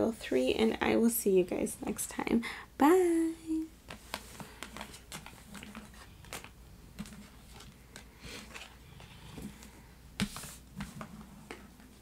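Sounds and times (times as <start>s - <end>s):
cards tapping and sliding on table: 10.2s - 11.7s.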